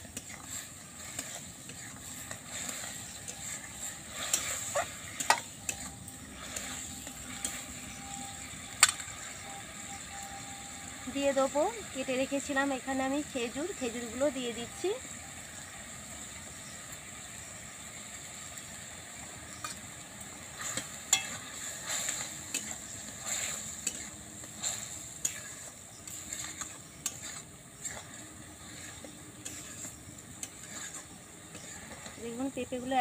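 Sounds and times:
spatula scraping metal wok: 0:00.0 - 0:10.2, 0:19.5 - 0:33.0
chutney simmering hiss: 0:00.0 - 0:33.0.

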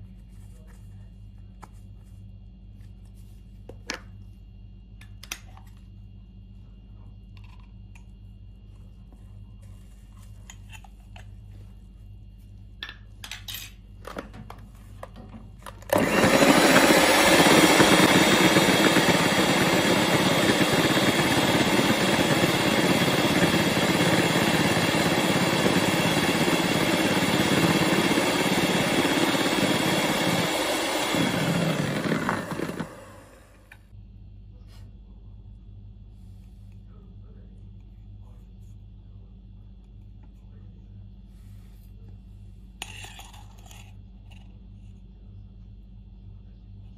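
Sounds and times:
electric hand mixer whisking: 0:15.9 - 0:33.8.

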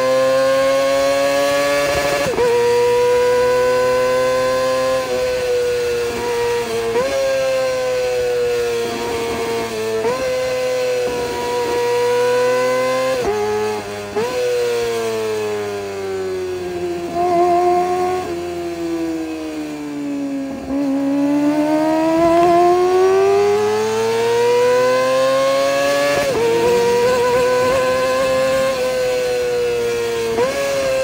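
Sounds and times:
motorcycle engine revving: 0:00.0 - 0:31.0
gear changes: 0:20.5 - 0:31.0.

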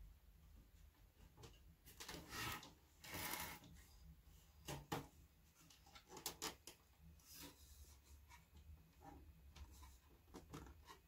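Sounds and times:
small clicks and knocks: 0:04.6 - 0:06.9, 0:08.3 - 0:11.0.

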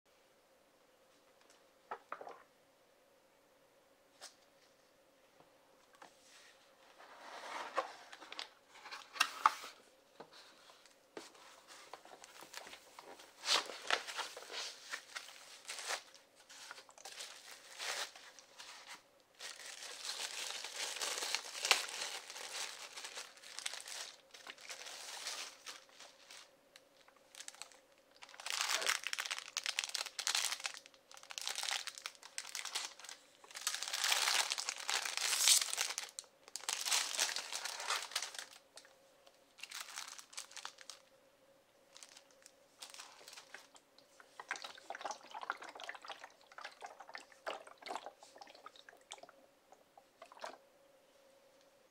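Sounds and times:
plastic film crinkling and rustling: 0:07.0 - 0:41.1, 0:41.9 - 0:46.7.

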